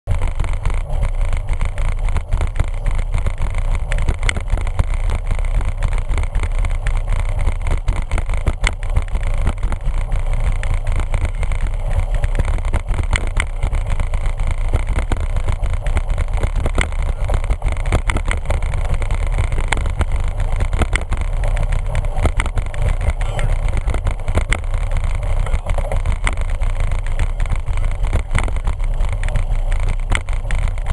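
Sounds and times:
wind rumbling on microphone: 0.1s - 30.9s.

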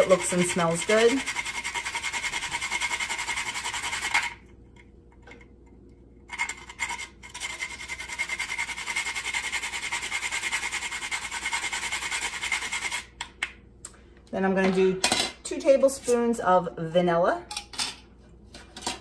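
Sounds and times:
nutmeg grating: 0.0s - 4.4s, 6.3s - 13.1s.

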